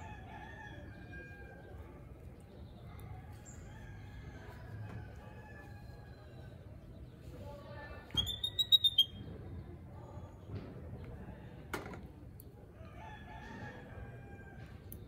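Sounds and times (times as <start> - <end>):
baby monkey squeaking: 8.2 - 9.2.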